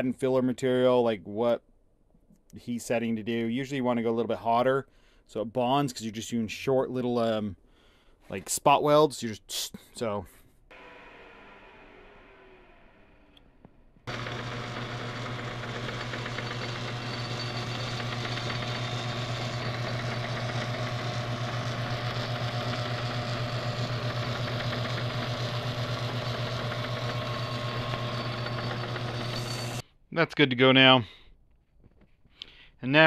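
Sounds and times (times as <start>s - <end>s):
electric welding arc buzzing: 14.1s - 29.8s.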